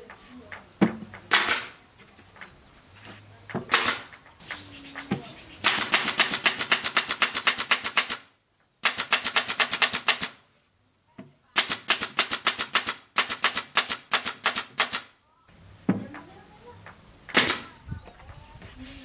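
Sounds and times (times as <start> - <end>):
nail gun shots into wood: 1.3 - 1.8, 3.7 - 4.1, 5.6 - 10.4, 11.6 - 15.1, 17.3 - 17.7.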